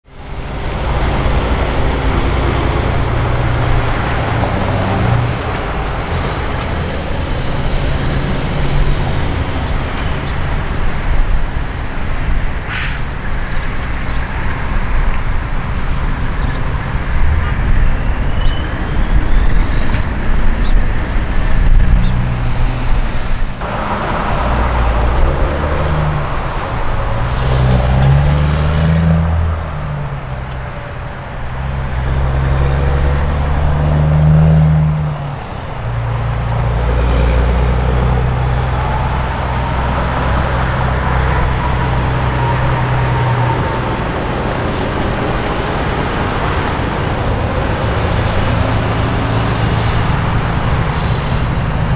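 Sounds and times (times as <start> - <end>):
diesel trucks rolling past: 0.1 - 51.9
air-brake hiss: 10.7 - 15.4.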